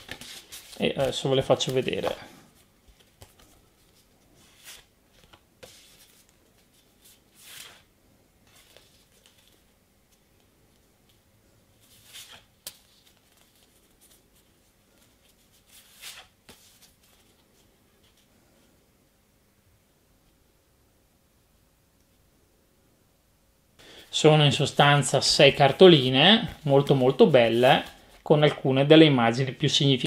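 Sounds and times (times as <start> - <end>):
cardboard cards sliding: 7.1 - 7.9.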